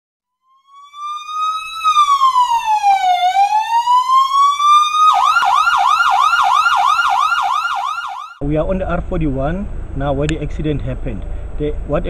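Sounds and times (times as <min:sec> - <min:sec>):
emergency siren wailing: 0:00.4 - 0:08.4.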